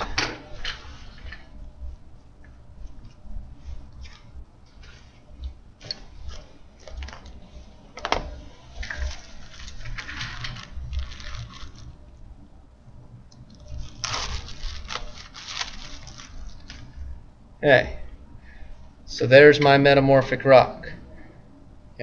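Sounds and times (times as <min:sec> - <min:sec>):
plastic bag crinkling: 0:08.9 - 0:12.0, 0:13.6 - 0:16.9.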